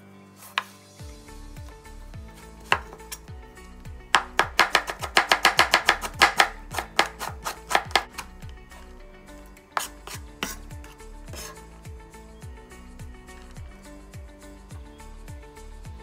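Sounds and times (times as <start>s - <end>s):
knife chopping on cutting board: 0.4s - 0.8s, 2.6s - 3.2s, 4.1s - 8.3s, 9.8s - 11.6s.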